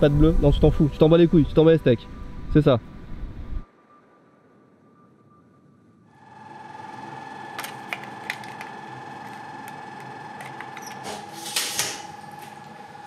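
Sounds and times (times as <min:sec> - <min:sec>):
noisy air conditioner whine: 0:06.1 - 0:13.0.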